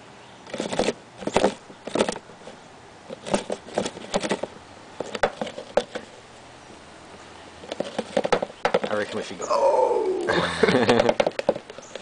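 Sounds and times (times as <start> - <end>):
plastic tub clicks and crackles: 10.8 - 12.0.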